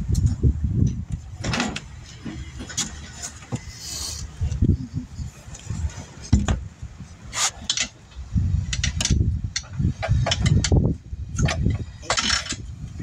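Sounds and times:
metal clicks and knocks: 7.6s - 12.7s.

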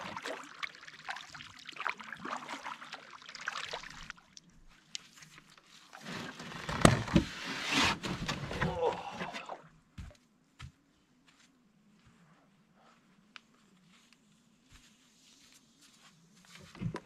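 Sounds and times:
water trickling around paddle: 0.0s - 7.2s.

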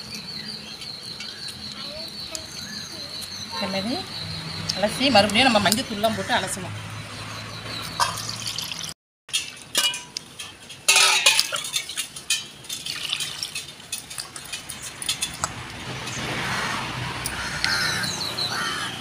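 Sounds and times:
metal bowls clinking and clattering: 9.3s - 16.2s.

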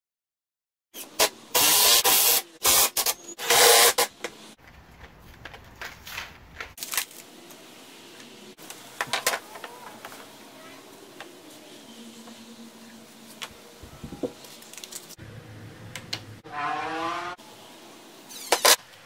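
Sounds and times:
cordless drill driving screws: 1.0s - 4.1s.

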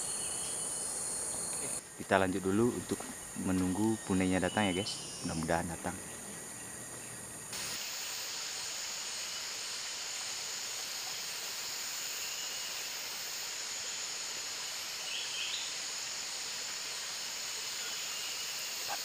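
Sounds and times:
constant hiss: 0.0s - 19.0s
forest insects droning: 0.0s - 19.0s
faint chirp: 3.2s - 7.3s, 17.7s - 19.0s.

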